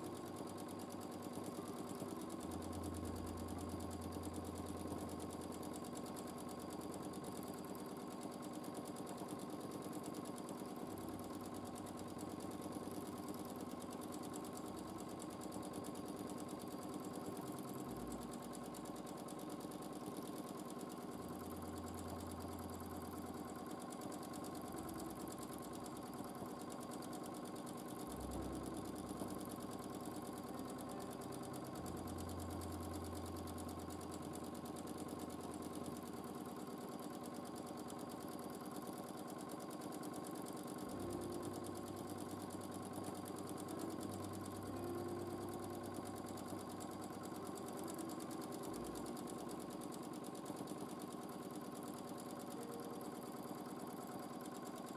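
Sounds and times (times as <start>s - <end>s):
sewing machine running: 0.0s - 54.9s.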